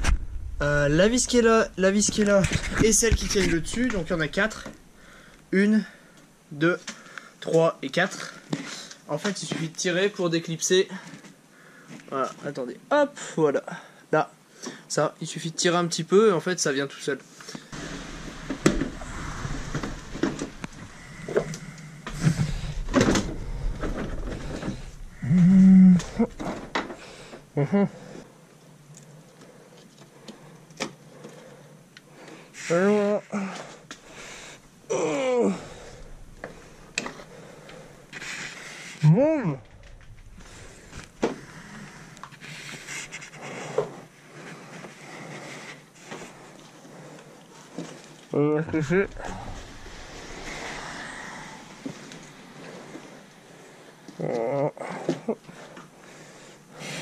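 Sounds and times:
plastic cover flexing and rubbing: 0.0s - 5.2s, 17.7s - 27.5s, 35.5s - 54.3s
plastic scraping and rustling: 0.0s - 5.2s, 17.7s - 25.4s, 39.6s - 53.3s.

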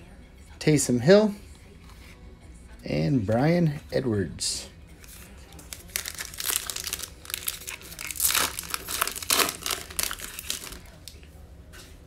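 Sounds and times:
foil wrapper crinkling: 5.0s - 11.2s.

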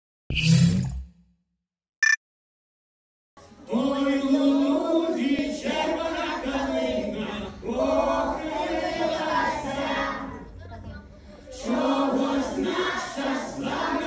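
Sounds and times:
group of voices singing: 3.4s - 10.5s, 11.4s - 14.0s.

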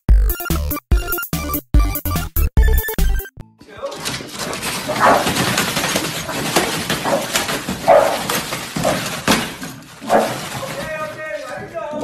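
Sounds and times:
scrabbling: 3.6s - 12.0s
paper rustling: 3.7s - 12.0s
dogs barking: 4.0s - 10.8s.

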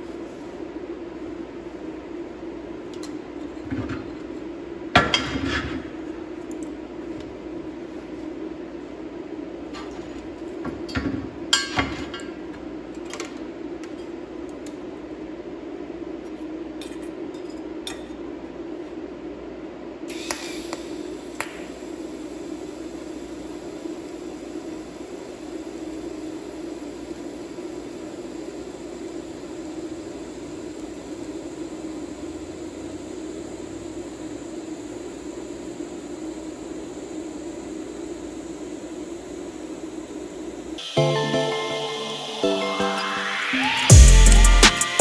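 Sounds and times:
welding arc hissing: 20.1s - 41.0s, 43.6s - 45.0s.

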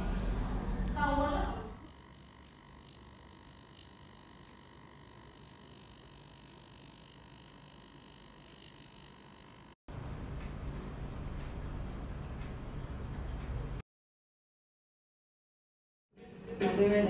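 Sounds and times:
electric machine hum: 1.0s - 9.8s
high steady whines: 1.6s - 9.8s.

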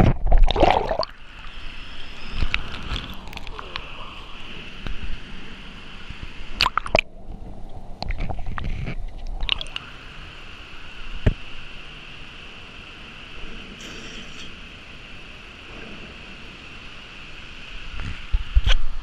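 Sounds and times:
water gurgling and sloshing: 0.0s - 10.1s
steady hiss: 0.9s - 19.0s.

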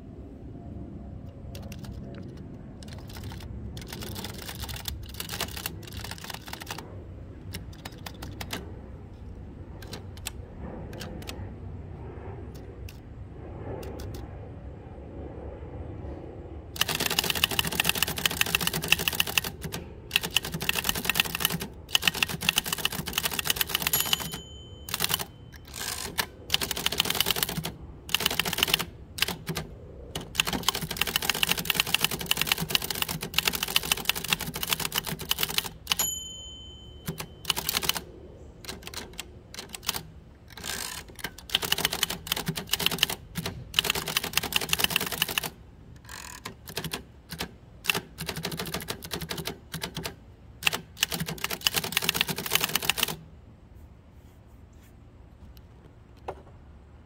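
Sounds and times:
manual typewriter typing: 1.5s - 6.8s, 7.4s - 8.7s, 9.8s - 11.4s, 16.8s - 36.2s, 37.0s - 38.0s, 38.6s - 53.2s
typewriter margin bell: 2.9s - 6.8s, 16.8s - 29.6s, 30.4s - 38.0s, 43.8s - 45.5s, 50.7s - 53.2s.

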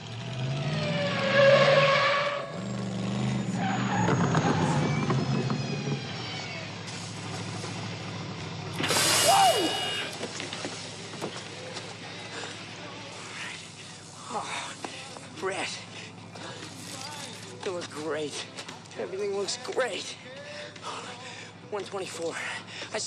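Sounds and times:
tyres screeching: 0.5s - 7.3s, 8.8s - 10.5s.

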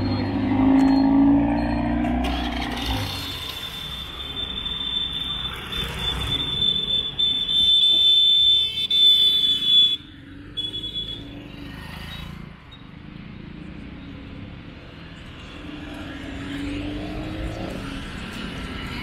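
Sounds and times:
street traffic: 0.0s - 19.0s.

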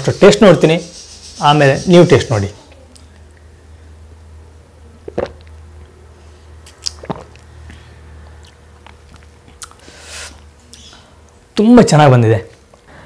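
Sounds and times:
person sipping and swallowing: 5.0s - 5.5s, 6.6s - 10.4s
wet mouth clicks and lip smacks: 6.6s - 7.5s, 8.2s - 9.8s.

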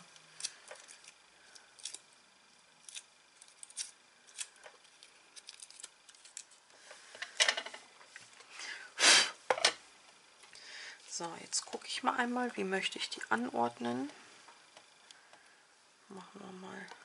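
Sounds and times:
paper crackling and clicking: 2.8s - 6.6s.

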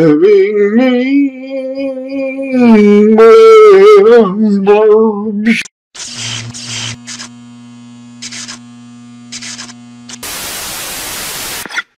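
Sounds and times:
electrical buzzing hum: 6.0s - 11.6s
static crackles: 6.7s - 12.0s
tv static hiss: 7.4s - 12.0s.

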